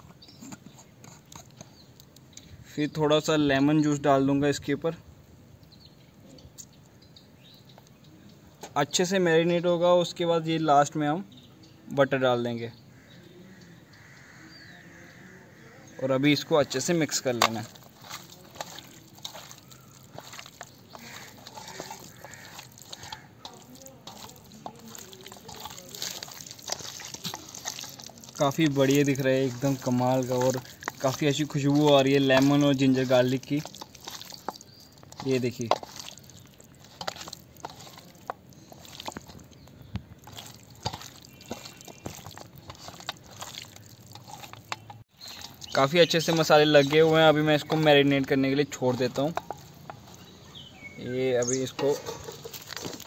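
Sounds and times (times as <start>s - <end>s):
wet squelching of meat mixed by hand: 16.3s - 53.0s.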